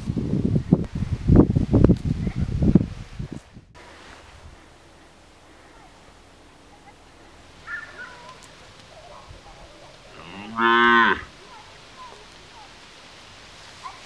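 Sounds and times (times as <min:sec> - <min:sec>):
cow mooing: 0:10.1 - 0:11.3.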